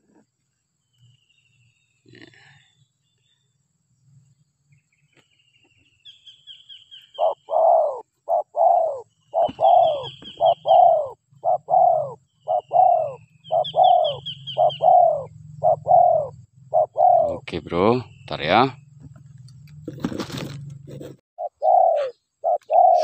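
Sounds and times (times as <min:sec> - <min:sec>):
small bird chirping: 0:00.8 - 0:19.9, 0:21.4 - 0:23.0
doves cooing: 0:07.1 - 0:23.0.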